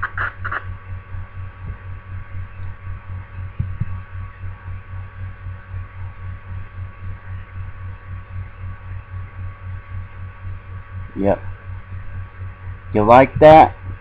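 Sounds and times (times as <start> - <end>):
pulsing electrical hum: 0.0 - 14.0.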